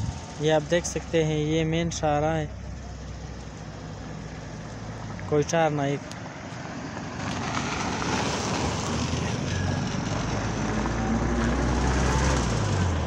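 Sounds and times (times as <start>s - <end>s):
car driving past: 6.2s - 13.0s.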